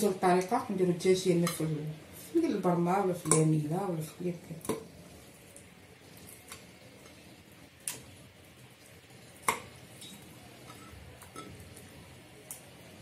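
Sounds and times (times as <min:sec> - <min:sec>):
clinks against metal pot: 0:09.5 - 0:11.6.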